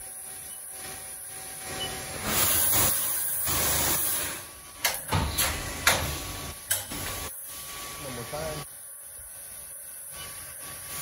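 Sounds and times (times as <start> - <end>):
sharp clicks and knocks: 4.8 - 7.1.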